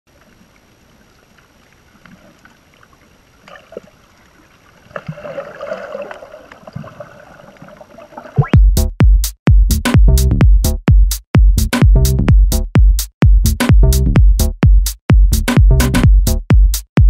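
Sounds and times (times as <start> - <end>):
rushing water: 0.1 - 8.6.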